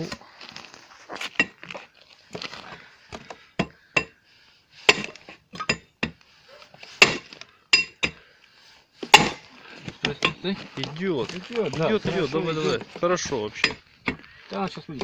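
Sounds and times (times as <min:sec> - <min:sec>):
hammer striking metal: 0:07.0 - 0:08.2.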